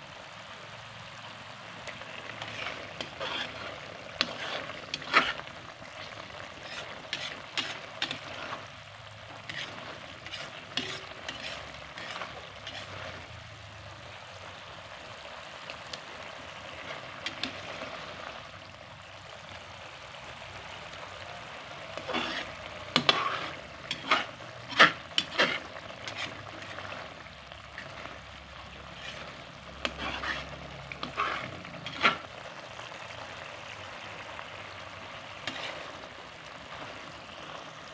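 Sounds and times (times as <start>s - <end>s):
sauce sizzling in oil: 0.0s - 37.9s
metal spatula scraping pan: 1.8s - 13.4s, 16.5s - 18.4s, 21.7s - 32.4s, 35.0s - 37.6s.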